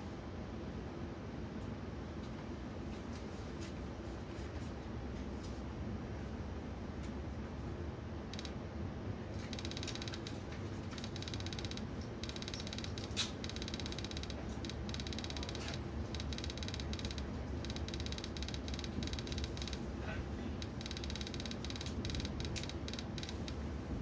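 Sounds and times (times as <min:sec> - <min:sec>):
faint rapid ticking and creaking: 0:08.3 - 0:08.6, 0:09.4 - 0:24.0.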